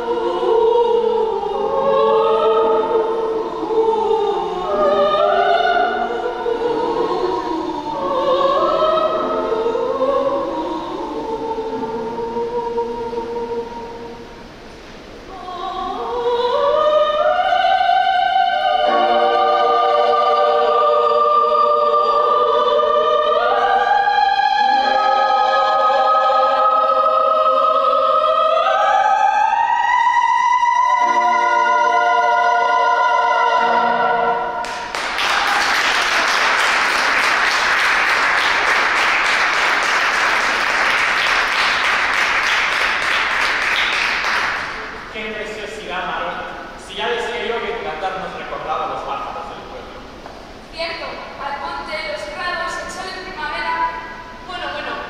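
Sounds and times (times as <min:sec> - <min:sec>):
women singing opera: 0:00.0 - 0:14.5, 0:15.3 - 0:37.6
audience applause: 0:34.6 - 0:45.0.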